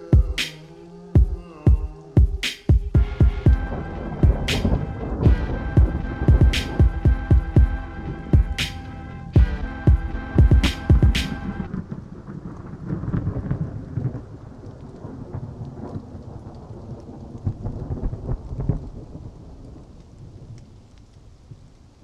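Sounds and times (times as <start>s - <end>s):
steady rain: 0.0s - 22.0s
thunder rumbling: 1.2s - 20.8s.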